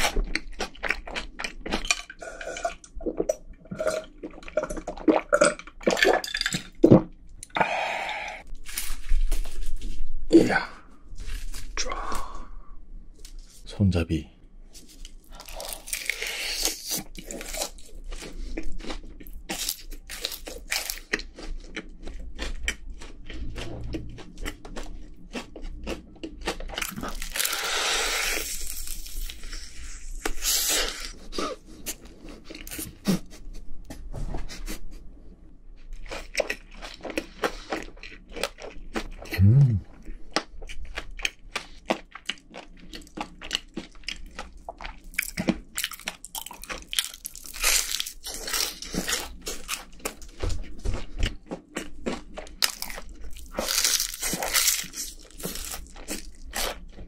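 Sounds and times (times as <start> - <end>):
crunching and chewing fried chicken: 0.0 - 3.1, 14.7 - 33.6, 35.8 - 57.0
person humming: 39.3 - 39.9.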